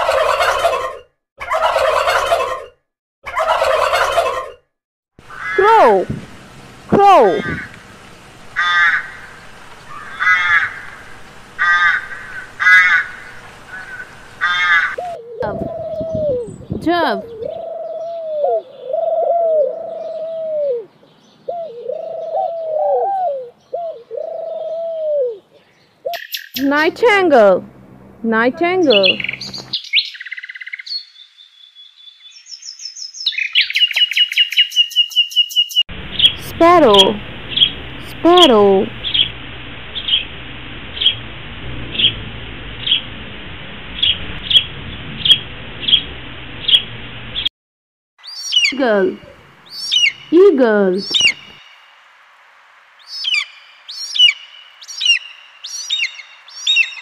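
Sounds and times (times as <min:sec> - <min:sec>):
crow cawing: 0:05.3 - 0:05.6, 0:08.6 - 0:15.0
nightingale song: 0:13.3 - 0:24.5, 0:25.5 - 0:26.9, 0:28.6 - 0:37.8, 0:38.4 - 0:39.3, 0:48.2 - 0:52.2, 0:53.0 - 0:57.0.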